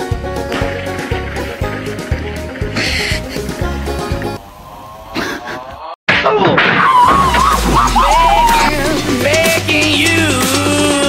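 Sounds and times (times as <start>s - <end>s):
background music: 0.0s - 4.4s, 7.2s - 11.0s
wavering pitched sound: 7.3s - 9.4s.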